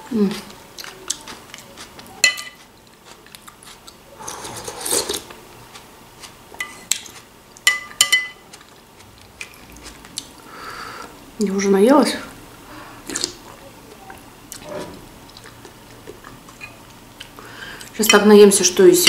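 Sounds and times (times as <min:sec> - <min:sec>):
spoon scraping bowl: 0:04.2 - 0:05.3
spoon clinking against glass bowl: 0:07.7 - 0:08.4.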